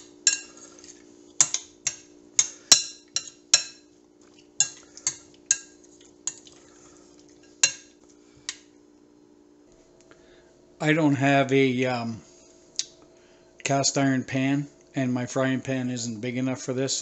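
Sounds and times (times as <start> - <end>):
faint steady hum: 0.0 - 17.0
metal spoon clinking glass bowl: 0.2 - 0.6, 1.4 - 3.9, 4.6 - 6.5.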